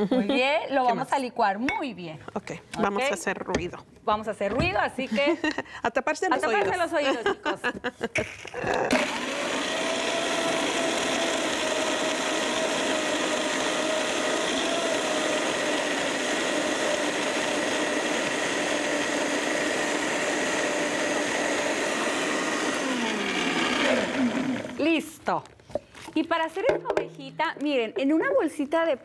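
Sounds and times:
blender motor whine: 8.6s - 25.0s.

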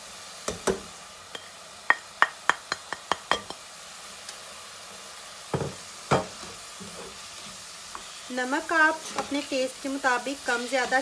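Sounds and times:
meat sizzling in a pan: 0.0s - 11.0s
cookware clinking against pan: 0.6s - 3.6s
scrape in pan: 5.6s - 11.0s.

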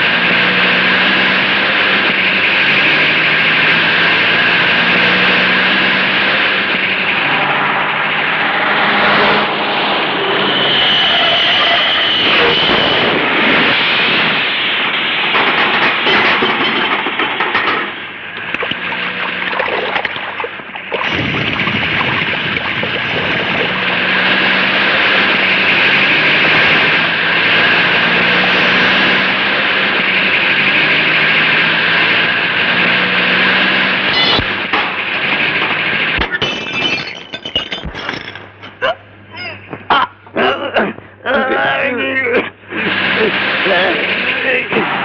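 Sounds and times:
vehicle engine: 0.0s - 40.3s, 42.3s - 45.0s
splashing water: 18.4s - 24.7s.

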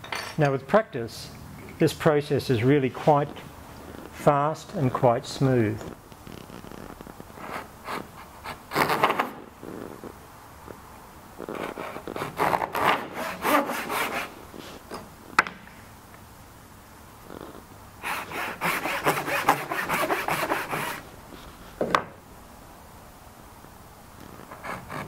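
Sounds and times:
pull saw cutting wood: 11.7s - 14.3s, 18.0s - 21.0s.

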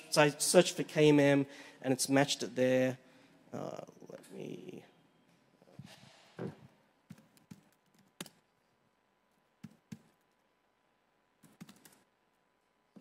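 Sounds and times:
laptop keystrokes: 7.1s - 8.4s, 11.4s - 12.1s.

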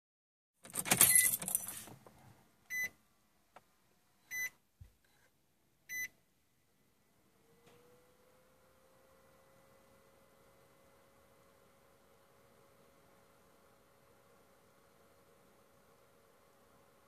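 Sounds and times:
keys jangling: 0.7s - 1.9s.

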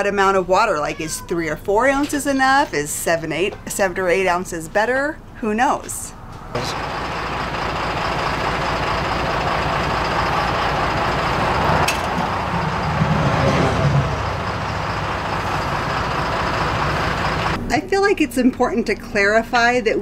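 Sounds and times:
low engine rumble: 6.1s - 20.0s.

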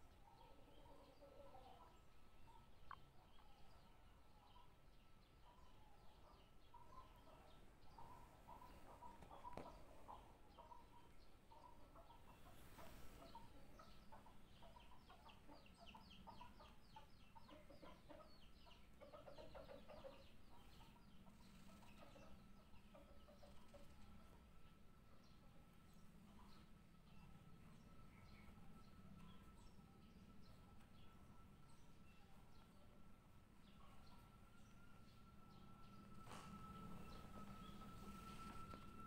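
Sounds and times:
faint steady whine: 23.6s - 39.0s
birds chirping: 25.3s - 39.0s.

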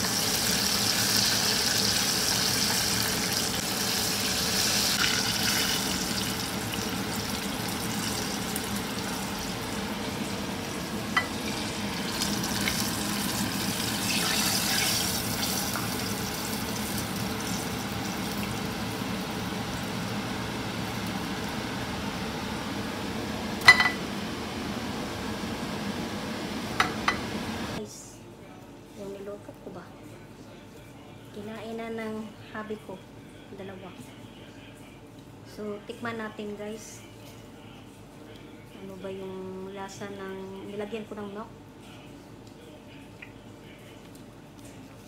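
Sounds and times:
chicken deep-frying in oil: 0.0s - 22.7s.

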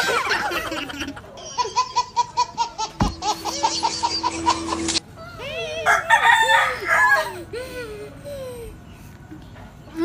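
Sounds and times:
girls laughing: 0.0s - 5.0s.

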